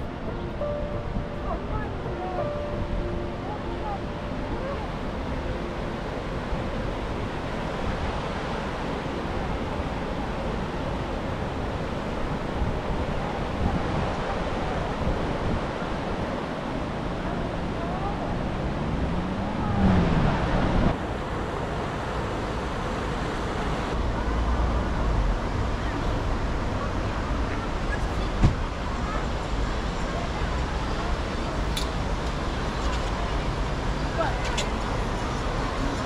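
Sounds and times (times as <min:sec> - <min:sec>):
river rushing over a weir: 0:00.0 - 0:36.0
passing vehicle engine: 0:17.4 - 0:23.1.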